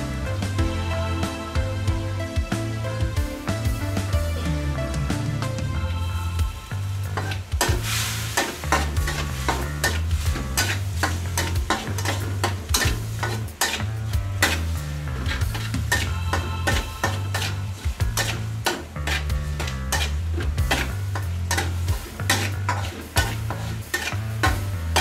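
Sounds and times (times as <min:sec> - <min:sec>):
meat sizzling in hot oil: 0:06.7 - 0:25.0
metal spatula scraping wok: 0:06.7 - 0:25.0.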